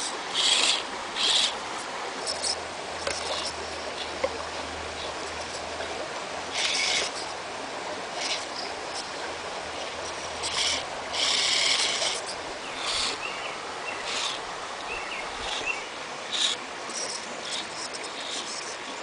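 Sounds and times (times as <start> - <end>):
creek rushing: 0.0 - 19.0
toy car motor buzzing: 0.4 - 1.5, 6.5 - 7.3, 8.2 - 9.1, 9.8 - 13.2, 14.1 - 14.4, 16.3 - 18.8.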